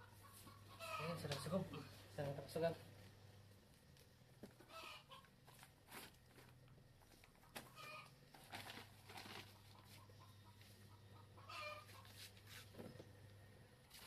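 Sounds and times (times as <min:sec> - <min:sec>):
chicken clucking: 0:00.0 - 0:01.9, 0:04.6 - 0:05.3, 0:07.4 - 0:08.2, 0:09.2 - 0:12.2
plastic bag rustling: 0:05.4 - 0:10.0.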